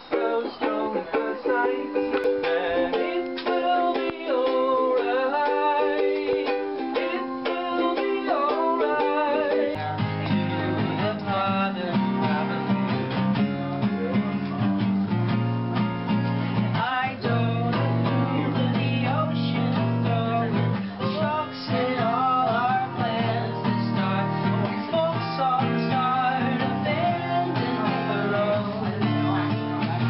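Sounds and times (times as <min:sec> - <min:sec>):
person singing: 0:00.0 - 0:15.1, 0:16.2 - 0:30.0
acoustic guitar strumming chords: 0:00.0 - 0:30.0.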